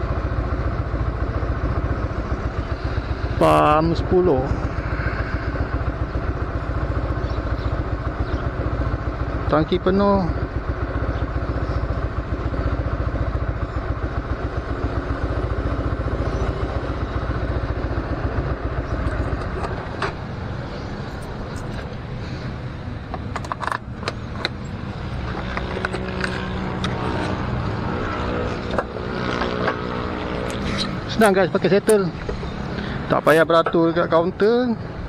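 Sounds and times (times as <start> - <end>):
motorcycle engine idling: 0.0 - 35.0
seat unlatching and lifting: 19.1 - 20.3.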